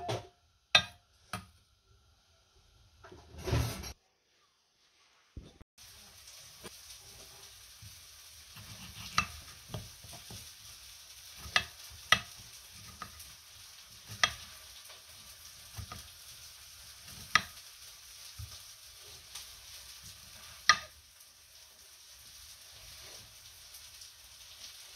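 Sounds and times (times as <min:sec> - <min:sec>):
knife slicing tomato: 0:08.5 - 0:10.5, 0:11.3 - 0:13.2.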